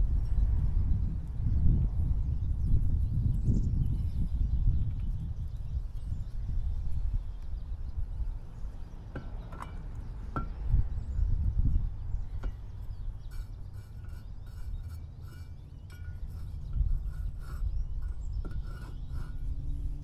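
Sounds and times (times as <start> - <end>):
metallic clinks and scrapes: 12.3 - 19.6.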